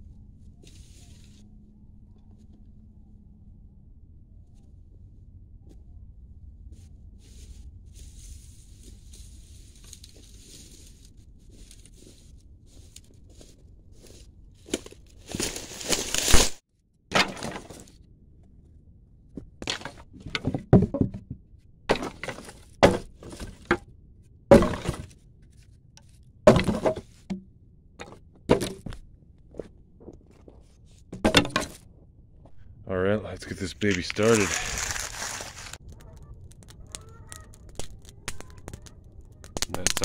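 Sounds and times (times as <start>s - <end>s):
dry sticks snapping: 14.7s - 16.6s, 33.8s - 40.0s.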